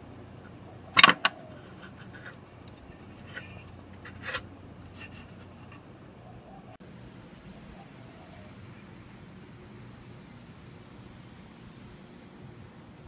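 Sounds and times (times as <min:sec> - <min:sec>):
light rubbing of plug: 0:01.0 - 0:05.9.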